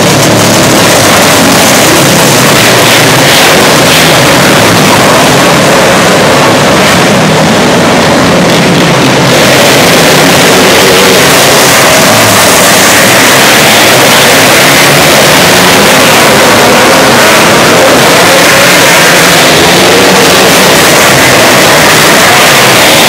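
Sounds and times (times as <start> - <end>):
racing car engines din: 0.0 - 23.0.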